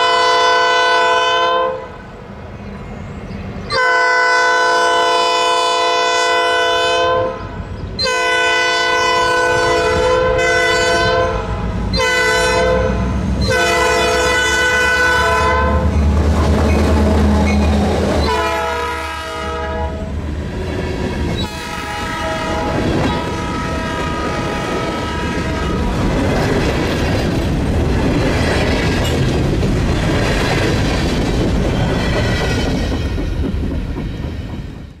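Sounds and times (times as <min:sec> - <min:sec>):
locomotive horn blasts: 0:00.0 - 0:02.0, 0:03.7 - 0:16.0, 0:16.9 - 0:20.2, 0:21.4 - 0:26.0
diesel locomotive engine rumbling: 0:00.0 - 0:35.0
train wheels clattering on rails: 0:15.9 - 0:18.7, 0:20.1 - 0:35.0.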